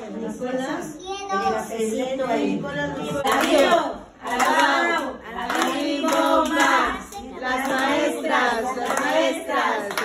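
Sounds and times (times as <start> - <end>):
group singing together: 0.0 - 10.0
hands clapping: 3.2 - 8.1, 8.7 - 10.0.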